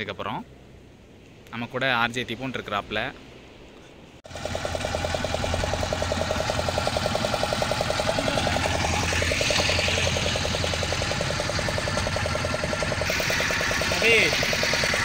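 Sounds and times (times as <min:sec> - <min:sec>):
boat engine running: 0:04.3 - 0:15.0.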